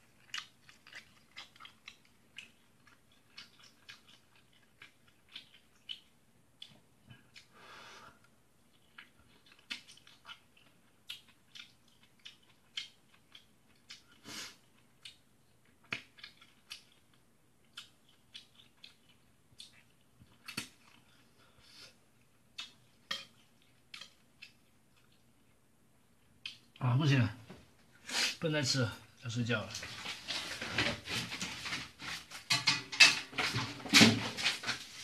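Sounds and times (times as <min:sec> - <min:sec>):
person chewing spaghetti: 0:00.0 - 0:26.8.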